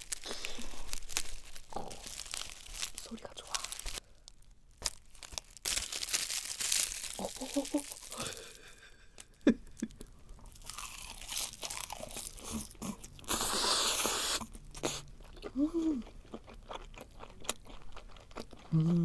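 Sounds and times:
crunchy bites and chewing: 0:00.0 - 0:08.6, 0:10.5 - 0:15.4, 0:16.0 - 0:19.0
dried seaweed crackling: 0:00.0 - 0:09.2.

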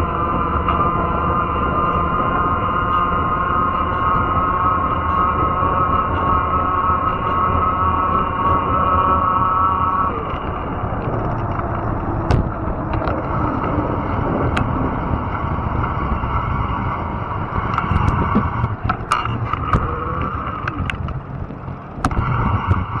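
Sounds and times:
electric motor whine: 0:00.0 - 0:23.0
rumble of tyres and wind: 0:00.0 - 0:23.0
sharp clicks and knocks: 0:10.2 - 0:13.7, 0:17.5 - 0:23.0.

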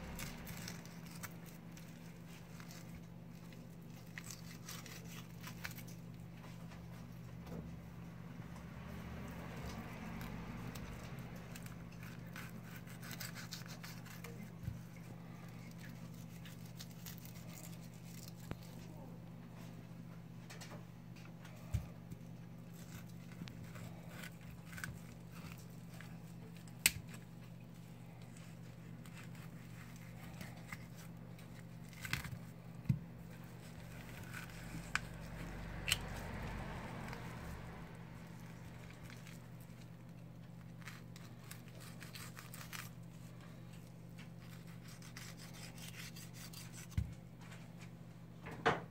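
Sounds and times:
steady low hum: 0:00.0 - 0:48.6
knife scraping meat off bones: 0:09.6 - 0:18.8, 0:21.6 - 0:37.4, 0:38.3 - 0:47.1
knife scraping meat off bone: 0:10.1 - 0:18.6, 0:33.4 - 0:37.4, 0:44.1 - 0:47.1.

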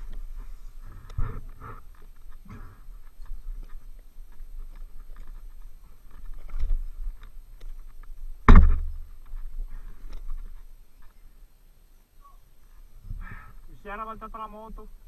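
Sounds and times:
loud thump: 0:08.4 - 0:09.0.

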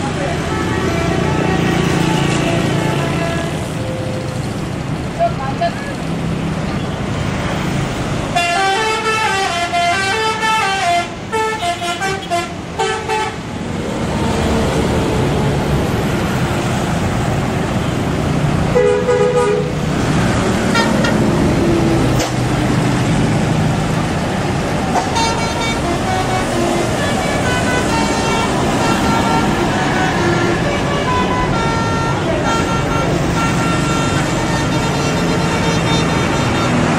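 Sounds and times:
bus engine running: 0:00.0 - 0:36.9
bus horn multi-note tune: 0:08.4 - 0:13.4, 0:18.7 - 0:19.8, 0:20.7 - 0:21.3, 0:24.9 - 0:36.9.

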